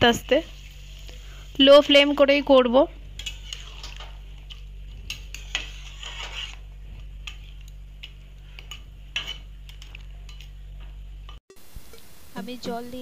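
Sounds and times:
steady low hum: 0:00.0 - 0:13.0
spatula scraping metal pan: 0:03.2 - 0:04.1, 0:05.1 - 0:06.6.

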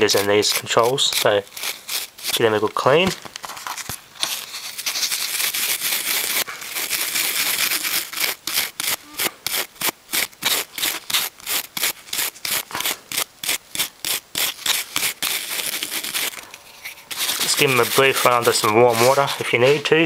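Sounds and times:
scrubbing knobs with polish: 0:16.0 - 0:20.0.

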